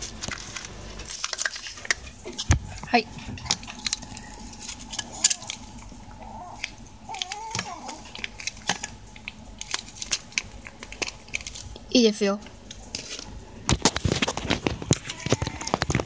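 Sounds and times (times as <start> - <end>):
cat chewing and lapping: 8.0 - 11.9.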